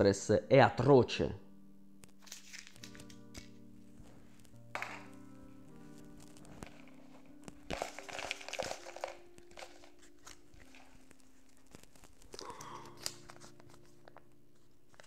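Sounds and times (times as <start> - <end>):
paper crinkling: 2.0 - 15.0.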